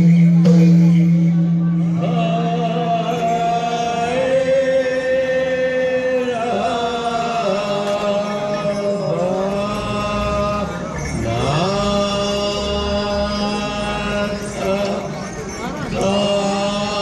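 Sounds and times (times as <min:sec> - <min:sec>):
singers chanting devotional song: 0:00.0 - 0:17.0.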